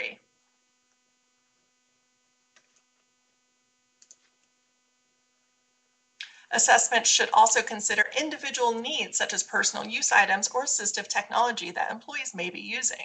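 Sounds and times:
faint electrical hum: 0:00.0 - 0:13.0
faint clicks: 0:02.5 - 0:03.1, 0:04.0 - 0:04.6.

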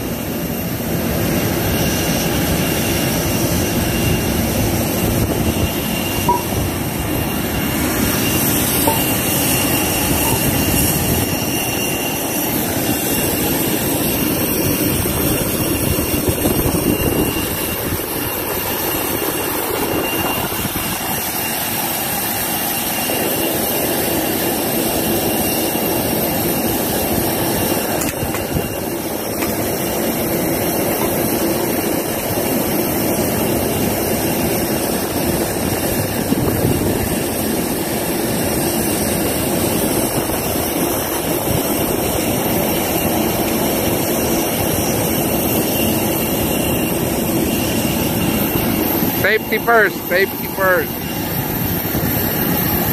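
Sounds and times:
jet engine rushing with high whine: 0:00.0 - 0:52.9.

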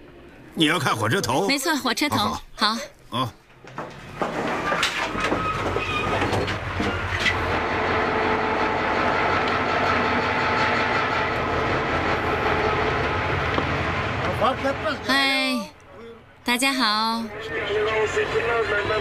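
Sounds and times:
locomotive engine hum with whine: 0:00.0 - 0:02.1, 0:03.4 - 0:19.0
knocks: 0:03.6 - 0:07.6.

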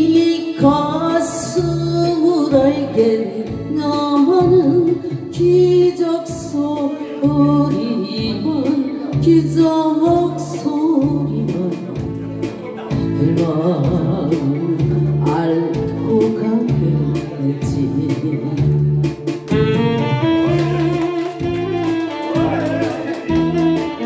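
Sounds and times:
woman singing through a microphone: 0:00.0 - 0:19.8
karaoke backing track with beat: 0:00.0 - 0:24.0.

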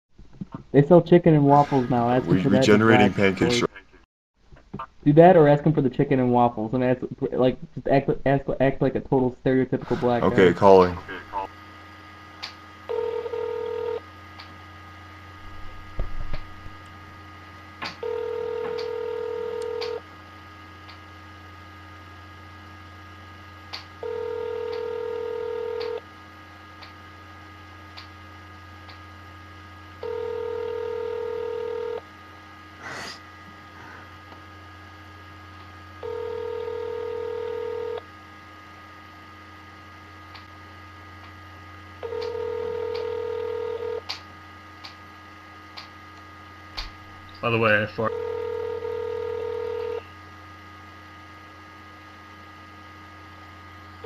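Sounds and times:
low hum on phone line: 0:00.3 - 0:54.0
telephone ringback tone: 0:12.9 - 0:14.0, 0:18.0 - 0:20.0, 0:24.0 - 0:26.0, 0:30.0 - 0:32.0, 0:36.0 - 0:38.0, 0:42.0 - 0:44.0, 0:48.1 - 0:50.0.

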